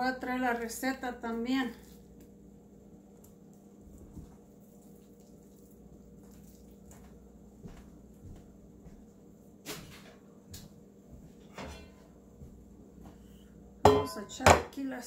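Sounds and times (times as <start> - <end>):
low steady hum: 0.0 - 15.0
kitchenware knocking and clattering: 13.9 - 14.8.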